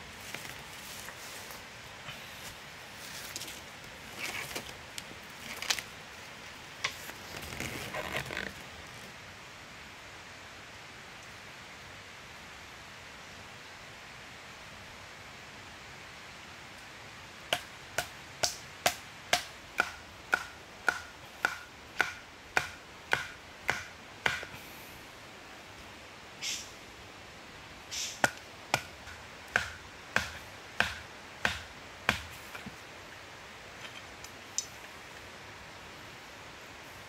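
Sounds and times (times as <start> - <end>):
tool chopping into wood: 17.5 - 24.5, 28.2 - 32.4.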